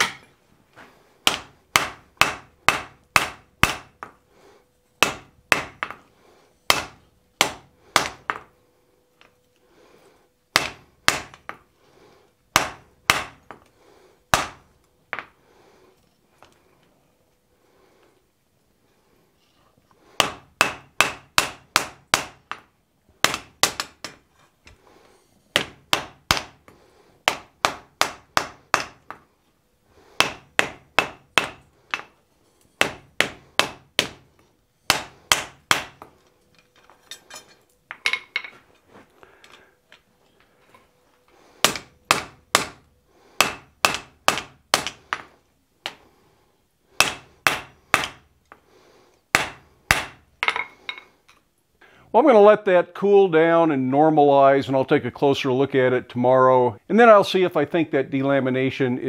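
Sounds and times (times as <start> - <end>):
hammer striking iron on anvil: 0.0 - 0.3, 1.3 - 4.1, 20.2 - 22.6, 41.6 - 42.8, 43.4 - 45.2, 47.0 - 48.2.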